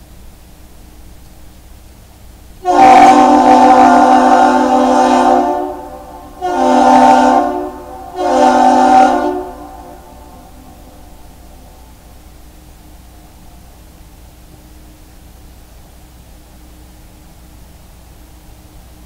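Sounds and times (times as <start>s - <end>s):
deep horn blasts: 2.6s - 11.9s.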